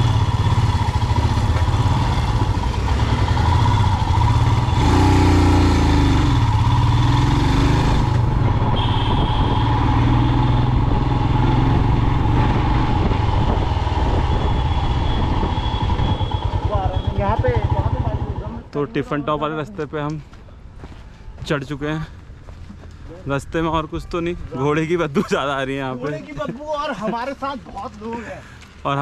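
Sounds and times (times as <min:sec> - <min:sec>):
vehicle engine running: 0:00.0 - 0:09.6.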